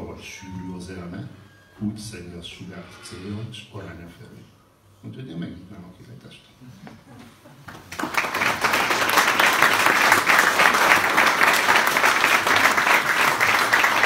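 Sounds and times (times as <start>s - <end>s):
audience applauding: 7.7s - 14.0s.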